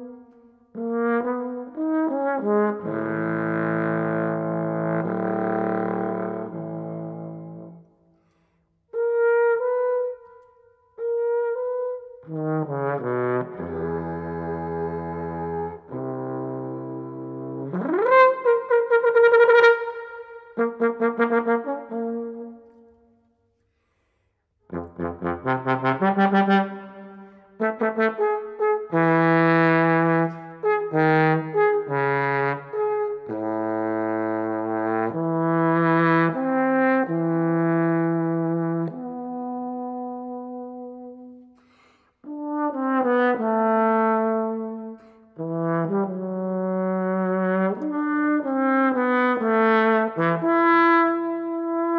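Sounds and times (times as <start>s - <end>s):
solo trombone playing: 0.0s - 7.8s, 11.0s - 22.7s, 24.7s - 41.4s, 42.2s - 51.9s.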